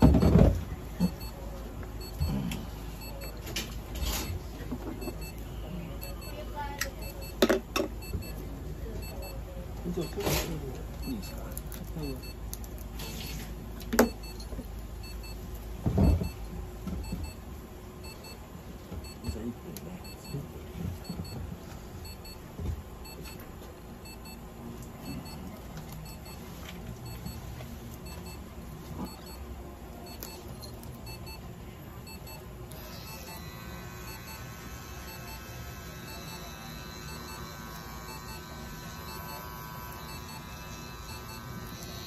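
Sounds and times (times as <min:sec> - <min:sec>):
electronic double beep: 0:05.0 - 0:06.4, 0:36.1 - 0:36.5.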